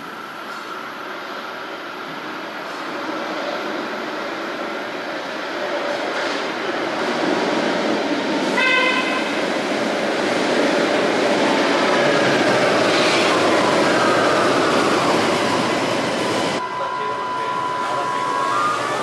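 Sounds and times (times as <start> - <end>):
falling whine of train: 0.0 - 19.0
train wheels rumbling on rail: 0.4 - 16.6
train horn toot: 8.6 - 9.3.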